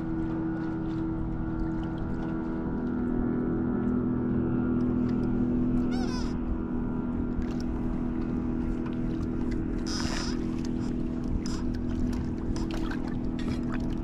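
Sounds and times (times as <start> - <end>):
boat motor humming: 0.0 - 14.0.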